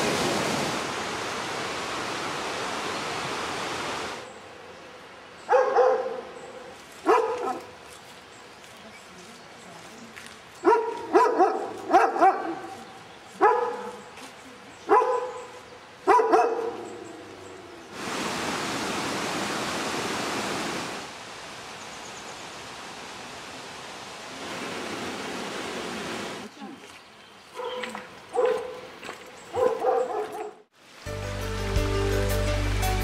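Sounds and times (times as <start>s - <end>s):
dog barking: 5.5s - 7.7s, 10.6s - 12.8s, 13.4s - 14.1s, 14.9s - 17.0s, 27.6s - 28.9s, 29.5s - 30.6s.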